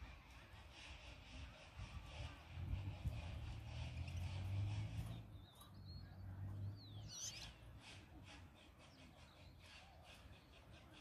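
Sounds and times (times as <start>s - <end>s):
goldfinches chirping: 3.0s - 11.0s.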